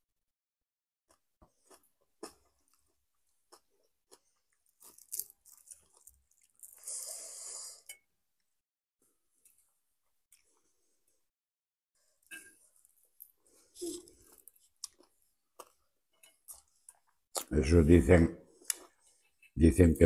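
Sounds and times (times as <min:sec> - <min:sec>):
chewing and crunching: 0:01.1 - 0:07.0, 0:12.6 - 0:17.5.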